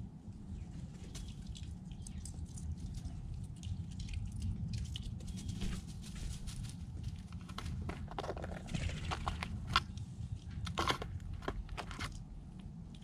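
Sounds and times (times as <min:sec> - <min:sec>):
low steady rumble: 0:00.0 - 0:13.0
squirrel rustling in dry leaves: 0:04.6 - 0:10.4.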